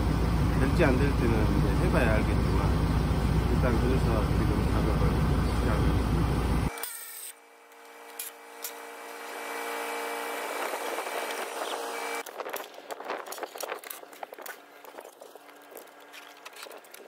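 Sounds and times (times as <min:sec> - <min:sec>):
loud low rumble: 0:00.0 - 0:06.7
power tool motor running: 0:06.6 - 0:12.3.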